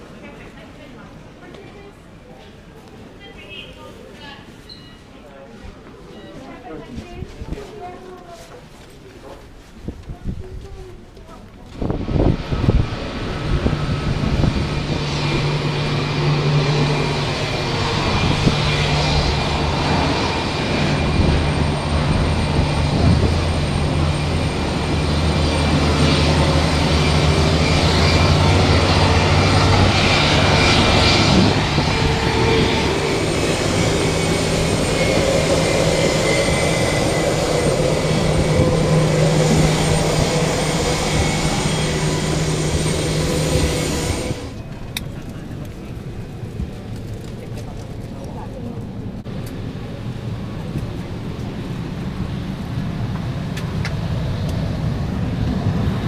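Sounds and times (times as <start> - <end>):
jet turbines whining: 11.7 - 56.0.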